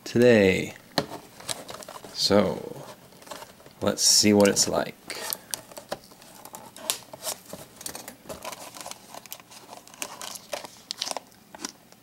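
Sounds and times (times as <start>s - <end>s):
cardboard box being handled: 1.0s - 4.8s, 5.6s - 11.2s.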